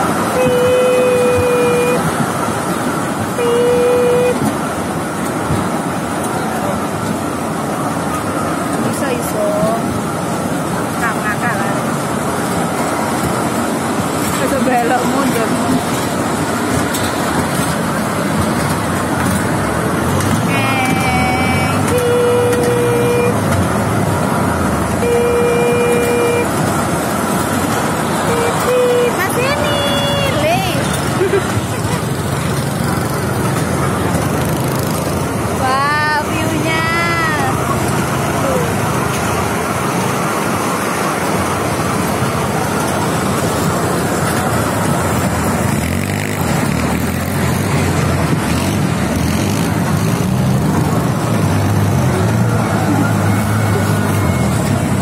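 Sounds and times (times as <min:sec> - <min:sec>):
train running on track: 0:00.0 - 0:55.0
train horn tooting: 0:00.3 - 0:02.1, 0:03.4 - 0:04.5, 0:20.8 - 0:23.5, 0:25.0 - 0:26.6, 0:28.2 - 0:30.5.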